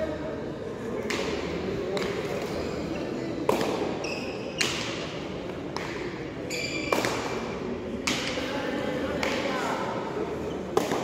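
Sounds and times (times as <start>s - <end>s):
crowd murmur: 0.0s - 11.0s
sneaker squeaks on court floor: 3.9s - 5.0s, 6.4s - 7.3s.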